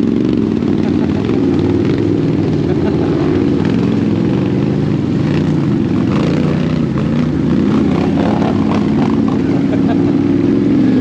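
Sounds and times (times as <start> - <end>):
atv engine running: 0.0 - 11.0.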